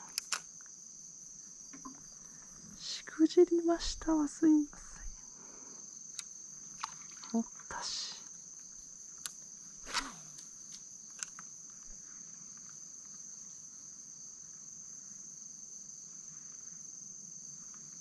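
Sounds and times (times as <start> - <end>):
insects singing: 0.0 - 18.0
brief swish: 9.8 - 10.4.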